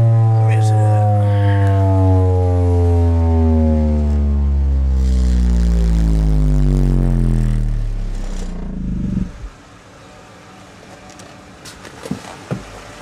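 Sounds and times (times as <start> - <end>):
falling bass tone sweep: 0.0 - 9.6
faint low rumble: 0.0 - 9.7.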